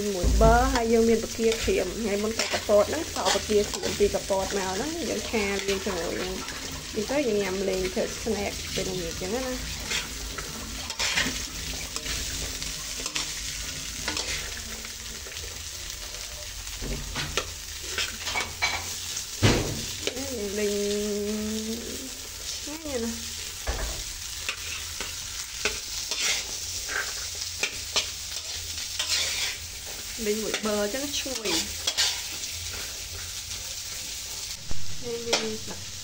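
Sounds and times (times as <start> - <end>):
corn kernels sizzling: 0.0 - 36.0
spatula scraping metal pan: 0.7 - 15.4, 16.9 - 19.1, 24.4 - 33.4.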